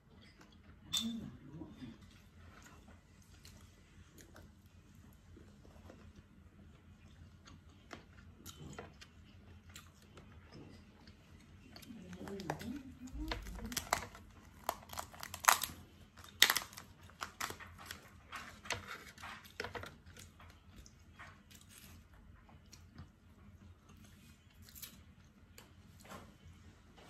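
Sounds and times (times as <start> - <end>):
tearing and chewing: 2.5 - 25.8
crab shell cracking: 13.2 - 17.9.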